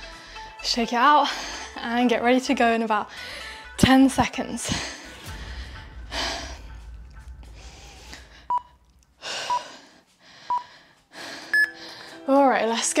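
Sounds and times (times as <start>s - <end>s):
person exhaling breathily: 4.8s - 11.5s
higher timer beep: 8.5s - 8.7s, 11.5s - 11.8s
timer beeps: 8.5s - 8.7s, 10.5s - 10.7s, 11.5s - 11.8s.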